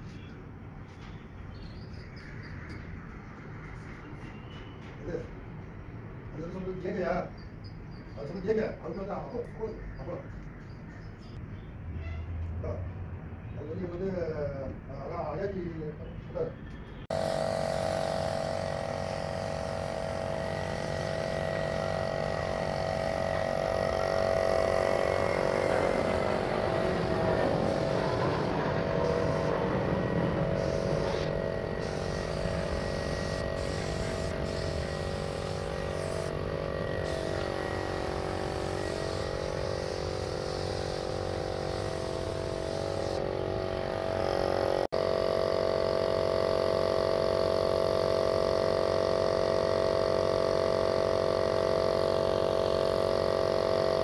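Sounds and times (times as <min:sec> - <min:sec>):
air compressor running: 0:17.1 - 0:54.0
paint spray gun hissing: 0:17.1 - 0:54.0.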